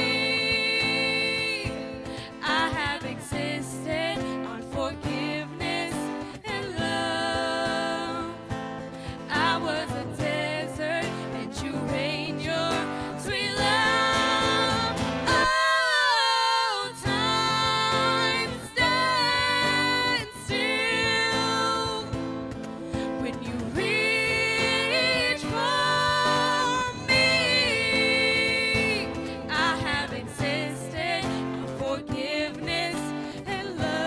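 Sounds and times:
strummed acoustic guitar: 0.0s - 34.0s
cajon beat: 0.1s - 8.1s, 17.0s - 31.6s
voices singing held notes: 23.3s - 34.0s.

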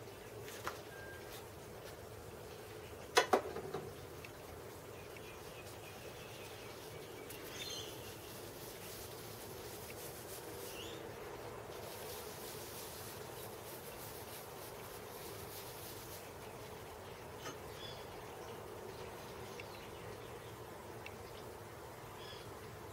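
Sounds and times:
steady low hum and hiss: 0.0s - 22.9s
faint high chirps: 0.7s - 1.4s.

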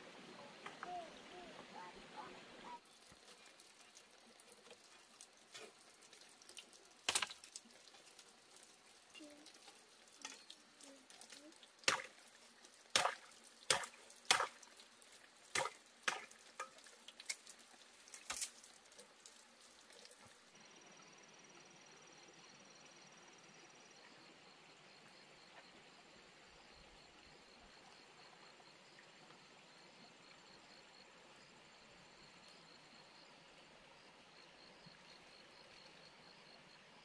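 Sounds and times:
faint background hiss: 0.0s - 25.2s.

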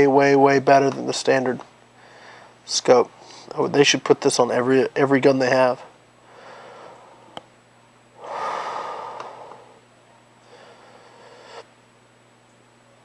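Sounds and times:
man breathing slowly: 2.0s - 2.6s, 6.2s - 7.5s, 8.2s - 9.8s, 10.4s - 11.8s.

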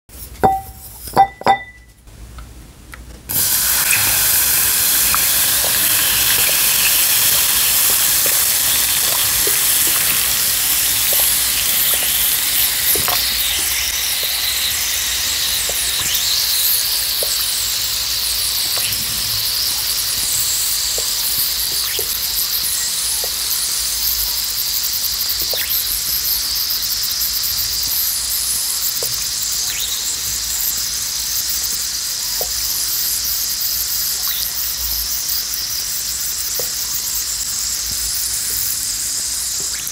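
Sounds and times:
taps on glass bowl: 0.4s - 1.9s
fizzing hiss with crackles: 3.3s - 39.9s.

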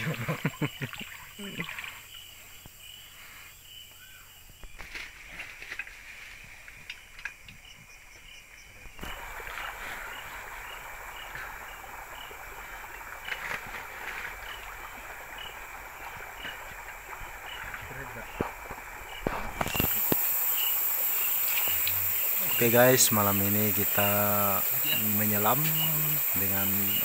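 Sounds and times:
water sloshing and splashing: 0.0s - 2.2s, 9.0s - 27.0s
insect chirping: 0.0s - 27.0s.

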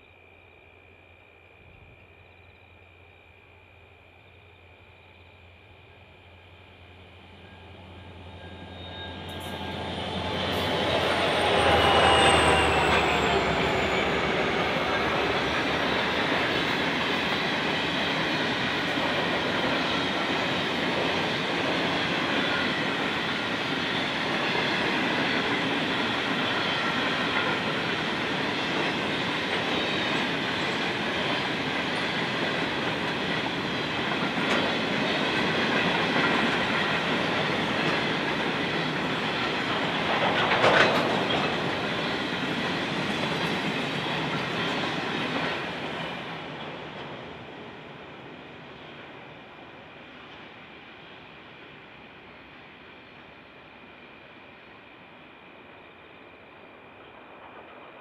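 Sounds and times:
faint ringing squeal: 0.0s - 16.8s
freight train rumbling past: 4.8s - 58.0s.

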